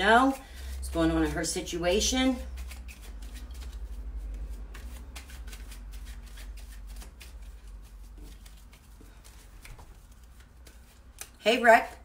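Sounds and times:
cards shuffled by hand: 2.3s - 11.4s.

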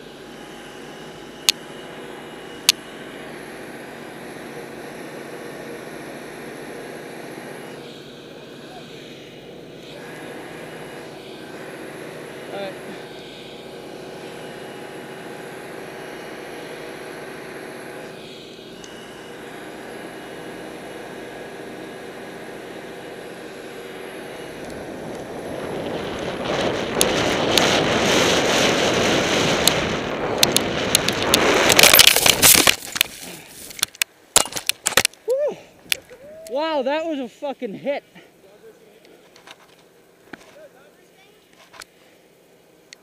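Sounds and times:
chairlift machinery hum: 0.0s - 43.0s
skis on snow: 23.5s - 33.8s.

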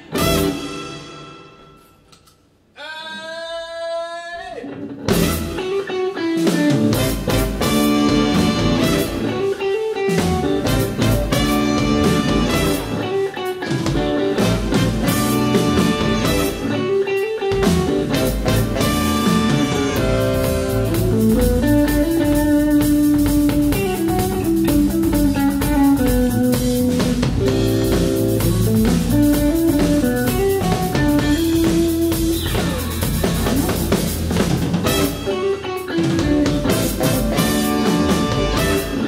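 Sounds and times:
horn section playing: 0.0s - 1.8s, 5.1s - 5.8s, 6.8s - 9.6s, 10.4s - 13.3s, 14.2s - 17.0s, 17.8s - 22.6s, 34.8s - 35.7s, 36.6s - 39.0s
electric guitar: 0.0s - 2.0s, 4.6s - 39.0s
drum kit: 0.0s - 2.5s, 4.9s - 39.0s
electric bass: 6.7s - 9.5s, 10.2s - 13.2s, 13.8s - 39.0s.

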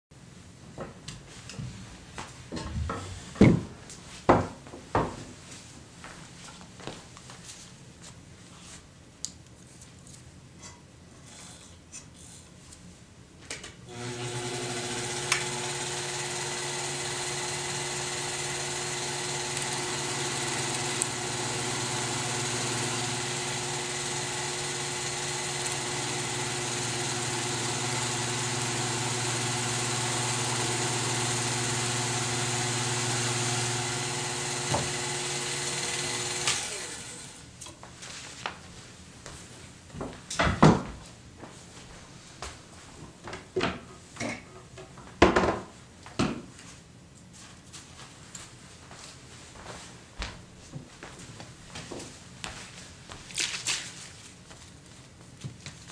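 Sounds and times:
power tool motor spinning: 13.9s - 37.4s.

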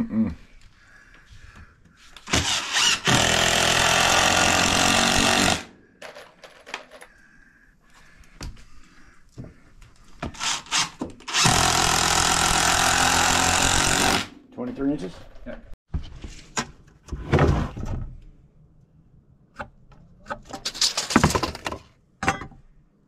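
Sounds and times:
cordless drill driving screws: 2.2s - 5.7s, 10.4s - 14.3s.

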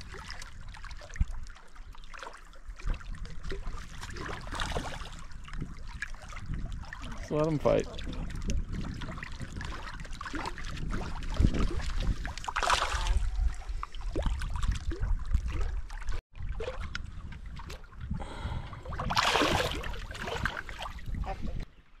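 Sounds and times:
wind rumble on microphone: 0.0s - 2.0s, 2.6s - 22.0s
fish splashing in water: 8.0s - 18.0s, 18.8s - 21.0s.

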